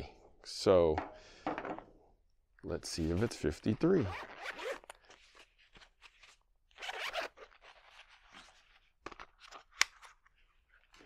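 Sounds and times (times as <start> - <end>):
zipper being pulled open: 3.0 - 8.9.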